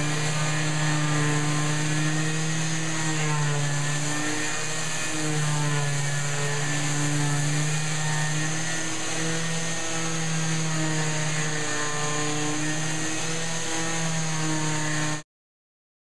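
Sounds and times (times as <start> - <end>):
orbital sander whirring: 0.0 - 15.2.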